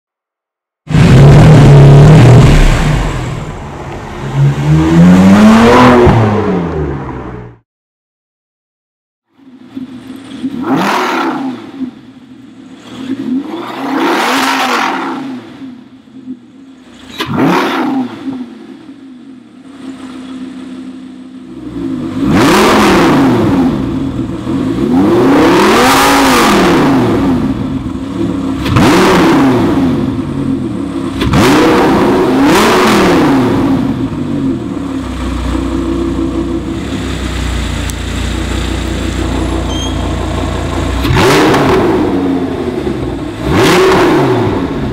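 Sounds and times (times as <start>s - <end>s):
sports car engine revving: 0.9s - 7.3s, 9.8s - 12.1s, 12.7s - 44.9s
engine idling with deep rumble: 33.5s - 43.6s.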